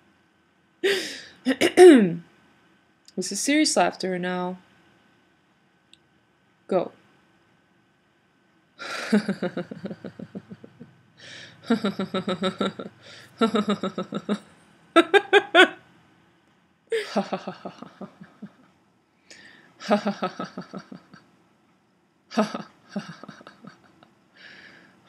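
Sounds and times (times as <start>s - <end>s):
woman laughing: 8.8s - 14.4s, 15.0s - 15.8s, 16.9s - 18.6s, 19.8s - 21.2s, 22.3s - 24.0s
short breaths: 11.2s - 11.6s, 19.2s - 19.7s, 24.4s - 25.0s.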